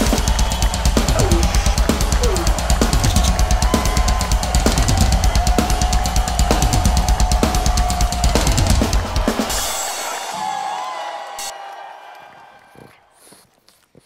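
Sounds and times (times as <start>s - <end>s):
rock drum solo: 0.0s - 10.3s.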